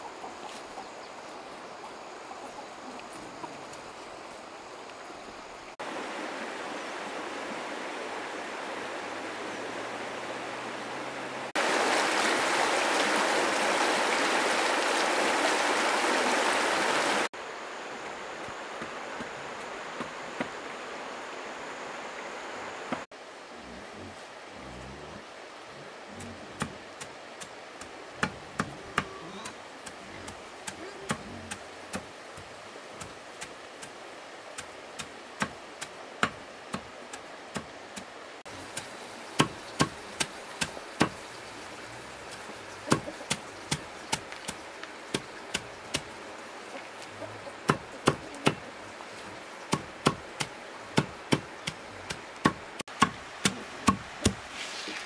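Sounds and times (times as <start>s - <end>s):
wood being chopped: 36.2s - 36.9s, 39.4s - 41.2s, 47.7s - 48.6s, 49.7s - 54.4s.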